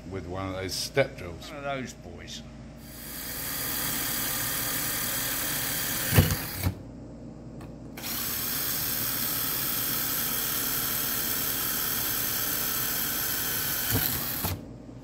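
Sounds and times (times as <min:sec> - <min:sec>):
electric drill drilling metal: 0:02.8 - 0:06.8, 0:08.0 - 0:14.6.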